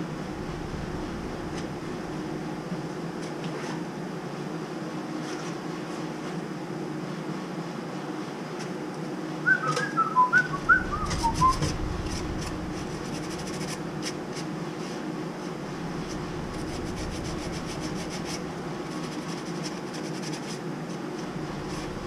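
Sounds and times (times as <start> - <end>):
steady low hum: 0.0 - 5.9, 10.3 - 22.0
quick high whistled notes: 9.5 - 11.8.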